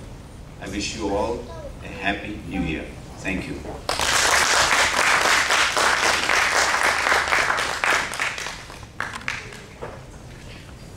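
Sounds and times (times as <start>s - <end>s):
audience applauding: 3.9s - 9.8s.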